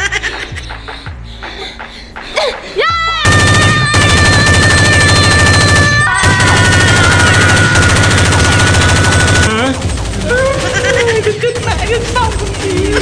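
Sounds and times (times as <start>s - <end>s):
machine-gun fire: 3.2s - 13.0s.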